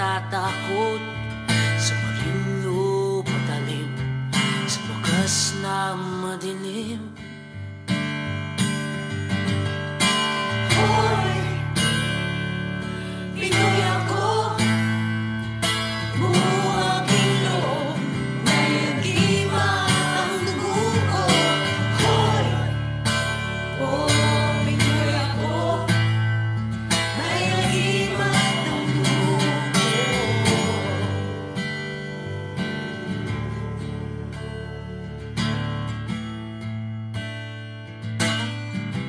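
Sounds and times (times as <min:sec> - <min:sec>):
strummed guitar: 0:00.0 - 0:39.0
steady bass: 0:10.2 - 0:35.6.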